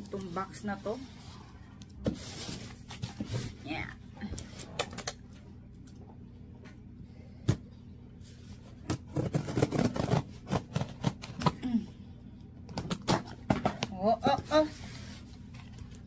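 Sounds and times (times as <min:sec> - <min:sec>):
scissors cutting packing tape: 0:09.1 - 0:11.2.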